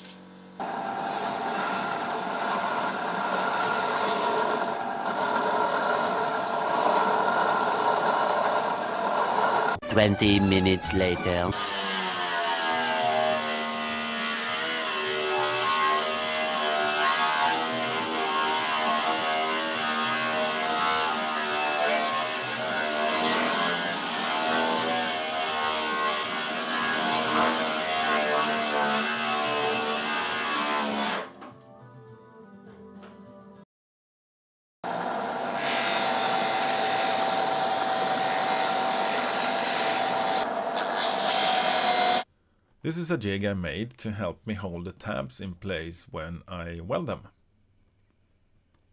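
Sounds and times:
angle grinder grinding steel: 0.7s - 31.3s, 35.5s - 42.3s.

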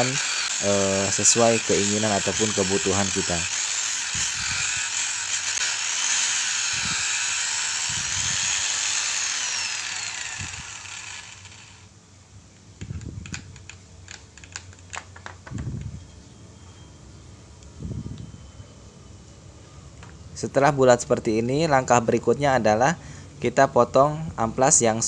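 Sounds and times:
angle grinder whining: 0.0s - 11.9s.

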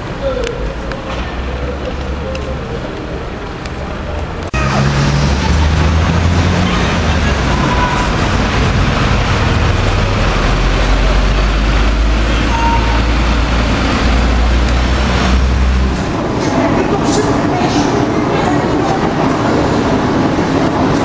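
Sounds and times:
car and bus engines passing: 0.0s - 21.0s
low traffic rumble: 0.0s - 21.0s.

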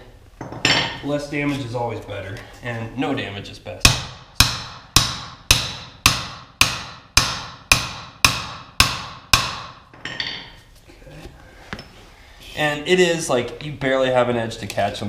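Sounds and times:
hammer striking metal rod: 3.8s - 10.5s.

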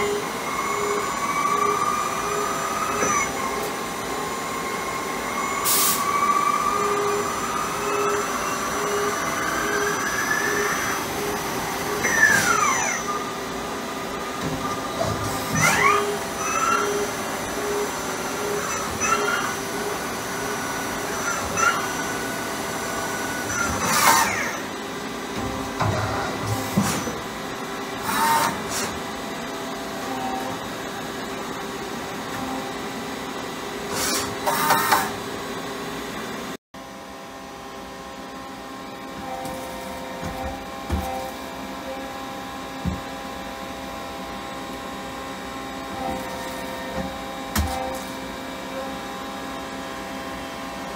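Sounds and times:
lathe machine humming and whining: 0.0s - 50.9s.

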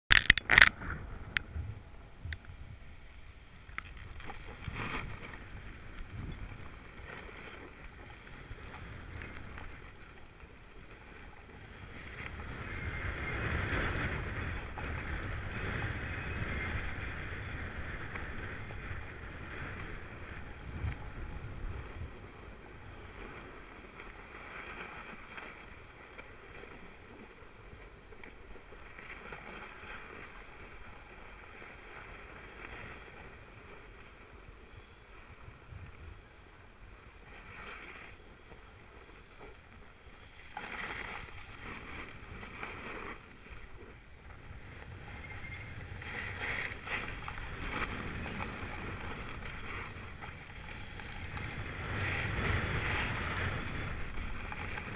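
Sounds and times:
wind rushing over microphone: 0.1s - 6.8s, 11.8s - 23.7s, 40.8s - 54.9s
skis sliding over packed snow: 2.2s - 54.9s.

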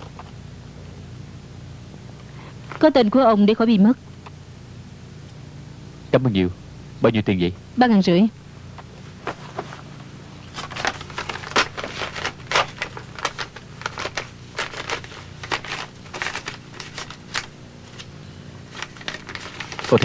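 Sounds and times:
low steady hum: 0.0s - 20.0s
paper banknotes crinkling: 9.2s - 20.0s.

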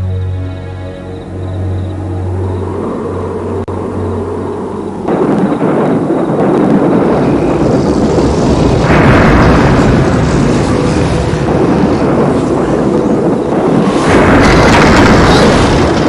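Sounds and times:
low rumbling roar: 1.3s - 16.0s.

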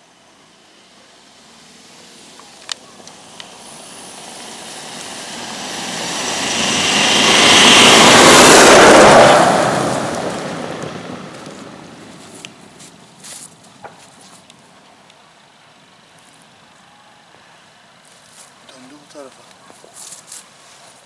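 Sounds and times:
pickup truck passing by: 0.0s - 13.4s.

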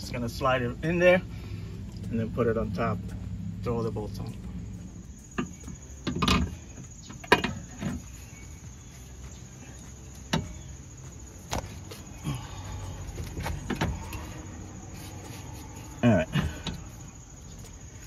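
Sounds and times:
metal clunks and knocks: 5.3s - 8.2s, 10.3s - 10.8s, 13.1s - 14.4s.

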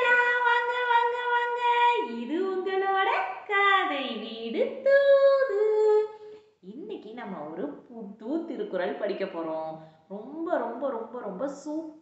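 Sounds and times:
woman singing: 0.0s - 6.9s.

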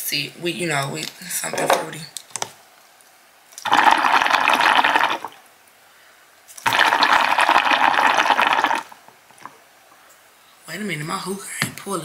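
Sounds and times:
hookah water bubbling: 3.6s - 5.5s, 6.6s - 9.7s.

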